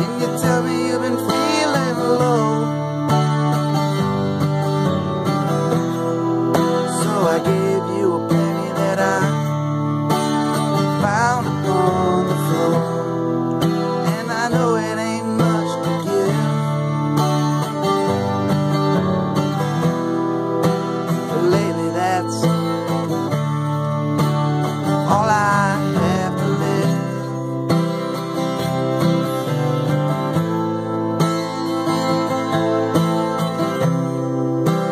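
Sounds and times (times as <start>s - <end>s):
man singing: 0.0s - 4.1s, 5.3s - 17.4s, 21.0s - 23.4s, 24.7s - 30.0s
acoustic guitar strumming: 0.0s - 34.9s.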